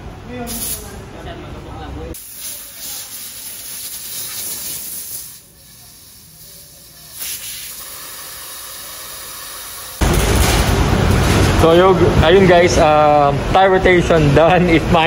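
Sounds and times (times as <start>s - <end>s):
air blow gun hissing: 2.2s - 10.0s.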